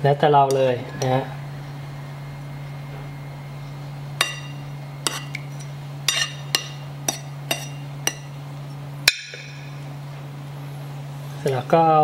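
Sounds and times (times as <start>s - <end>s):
metal spoon clinking on dishes: 4.2s - 8.4s.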